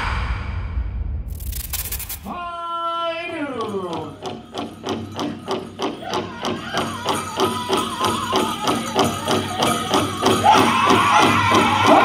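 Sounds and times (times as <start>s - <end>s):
powwow drum beating: 3.3s - 12.0s.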